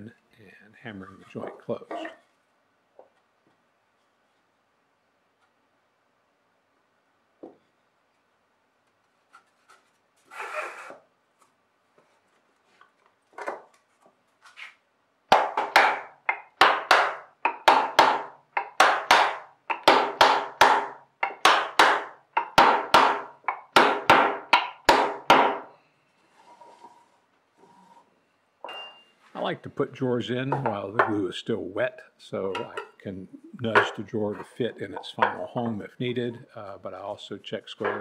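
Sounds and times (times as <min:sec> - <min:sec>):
wooden mallet knocking wood: 0:15.3 - 0:25.7
short wooden scrape: 0:26.3 - 0:28.1.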